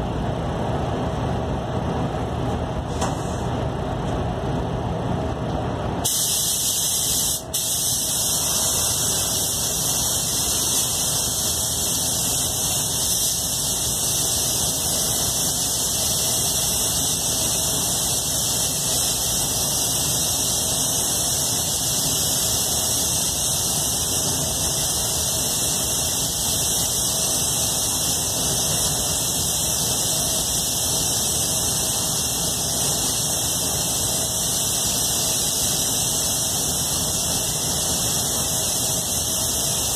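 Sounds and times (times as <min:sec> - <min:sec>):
spray gun hissing: 0:06.0 - 0:39.9.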